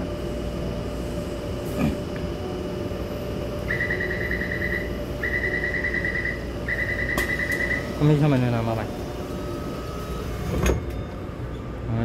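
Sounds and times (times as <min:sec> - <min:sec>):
station platform rumble and hum: 0:00.0 - 0:12.0
rapid high electronic warning beeps: 0:03.7 - 0:08.2.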